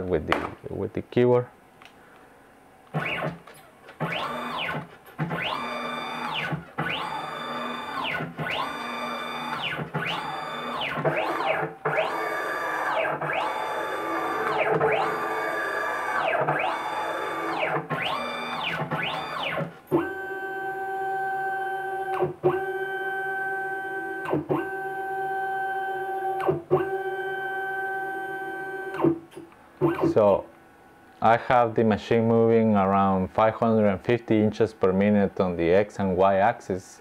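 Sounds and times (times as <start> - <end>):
stepper motors whining: 2.9 - 29.1.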